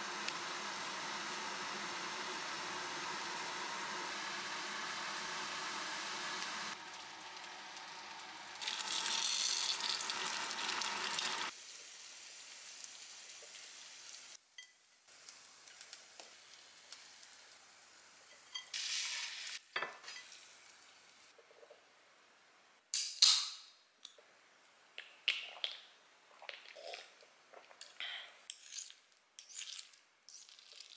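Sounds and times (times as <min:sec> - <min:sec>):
noodles sizzling in a frying pan: 0:00.0 - 0:21.3.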